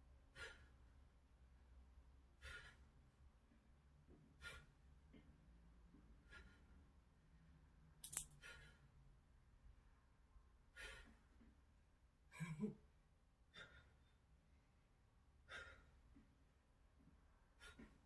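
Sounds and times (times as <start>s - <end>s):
woman breathing hard: 0.2s - 1.1s, 2.3s - 3.2s, 4.1s - 5.4s, 6.1s - 7.0s, 10.7s - 11.5s, 13.4s - 14.3s, 15.4s - 16.3s, 17.4s - 18.0s
sharp click: 8.0s - 8.4s.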